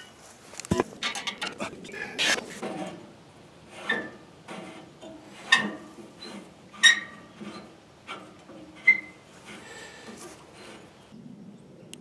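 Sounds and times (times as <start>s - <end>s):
metal clamp clicks and clanks: 0.6s - 1.6s.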